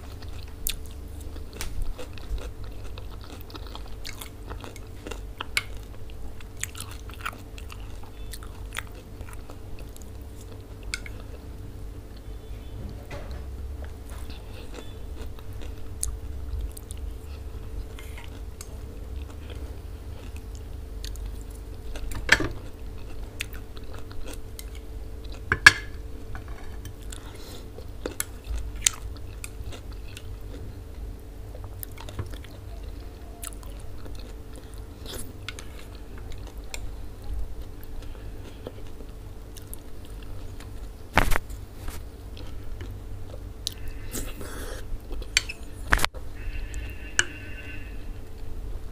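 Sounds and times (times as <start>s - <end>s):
close chewing and biting: 0.0s - 12.3s, 13.8s - 25.5s, 26.7s - 47.4s
spoon scraping ceramic plate: 46.7s - 47.8s.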